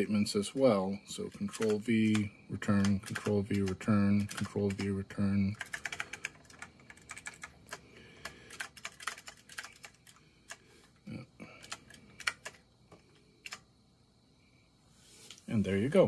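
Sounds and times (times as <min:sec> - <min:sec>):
computer keyboard key clacks: 0:05.6 - 0:10.6, 0:11.6 - 0:12.6.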